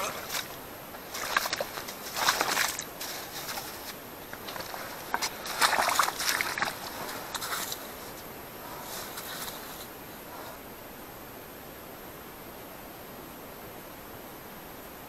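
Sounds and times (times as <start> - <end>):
hands sloshing in slushy water: 0.0 - 9.9.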